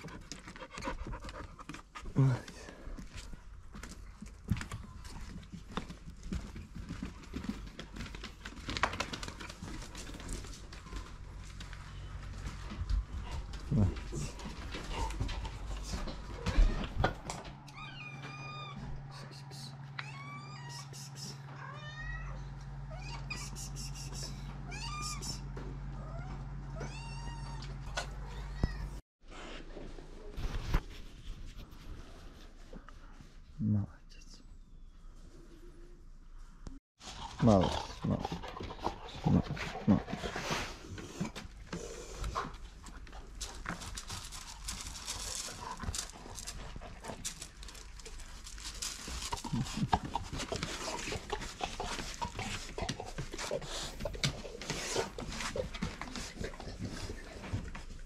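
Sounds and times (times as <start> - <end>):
dog paws crunching on gravel: 2.4 - 17.2, 41.8 - 58.0.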